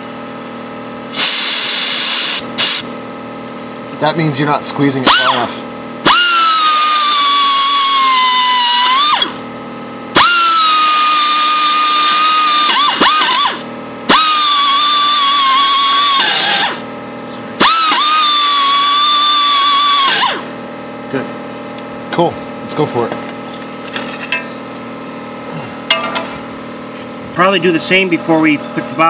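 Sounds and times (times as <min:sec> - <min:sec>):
pneumatic die grinder whining: 0:00.0 - 0:02.9, 0:05.0 - 0:09.5, 0:10.1 - 0:20.6.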